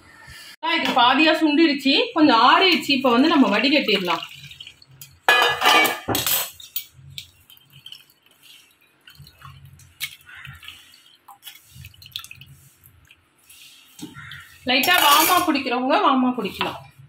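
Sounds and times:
rush of liquid pouring: 3.0 - 5.3, 7.0 - 14.6
strainer clinking against glass: 14.8 - 15.5.

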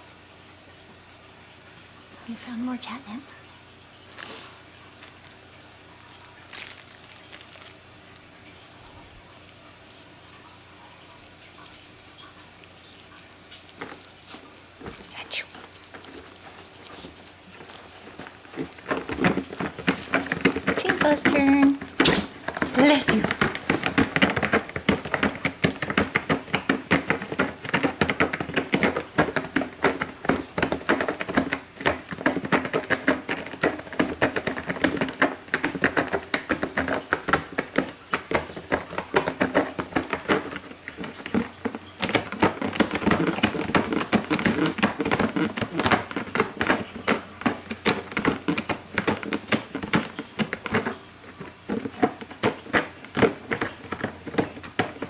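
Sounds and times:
cat rustling in cardboard box: 4.1 - 27.4.

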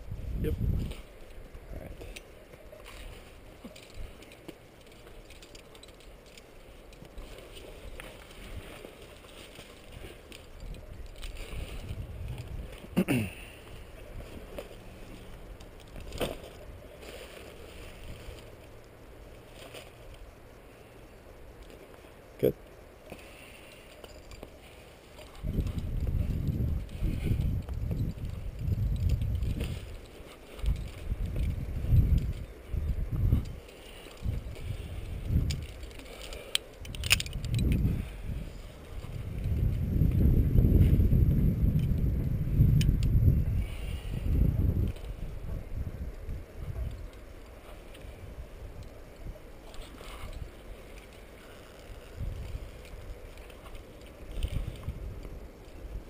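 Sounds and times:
wind buffeting microphone: 0.0 - 21.6, 24.0 - 56.0
metallic carabiner clinks: 2.0 - 12.8, 23.7 - 37.9.

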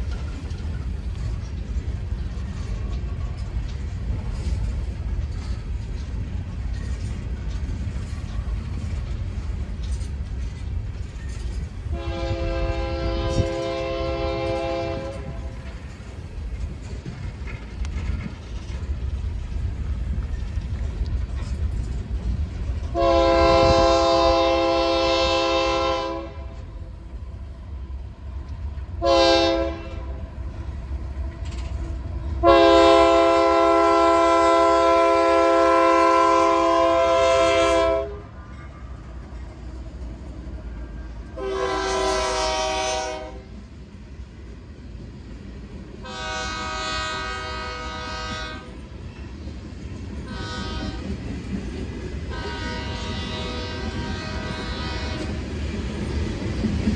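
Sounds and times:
freight cars rumbling on rails: 0.0 - 56.9
locomotive horn blasts: 11.9 - 15.5, 22.9 - 26.6, 29.0 - 30.2, 32.4 - 38.4, 41.3 - 43.5, 46.0 - 48.7, 50.3 - 51.1, 52.3 - 55.4.

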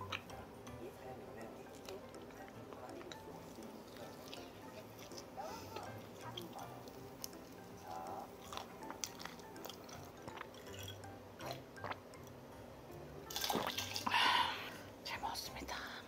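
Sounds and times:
chewing and wet mouth sounds: 0.0 - 0.4, 1.6 - 12.4, 13.2 - 14.8
soft background music: 0.0 - 16.0
drinking from a glass: 1.7 - 12.1, 13.3 - 14.7.

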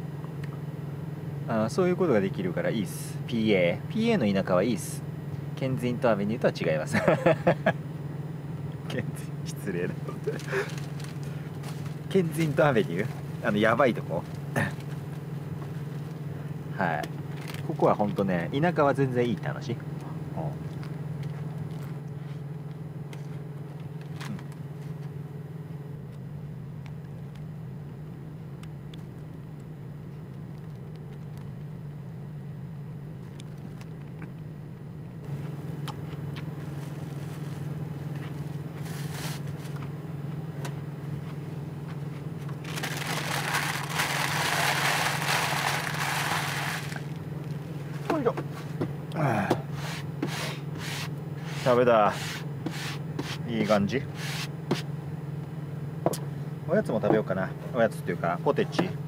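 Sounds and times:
steady low hum: 0.0 - 59.0
paper wrapper rustling: 10.3 - 12.0, 42.6 - 47.0.

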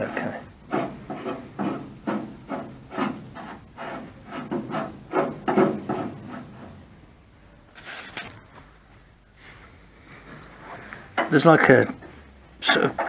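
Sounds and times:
rubbing and scraping: 0.0 - 7.1, 7.7 - 8.5, 10.0 - 13.0
sharp scrape: 7.8 - 8.4.

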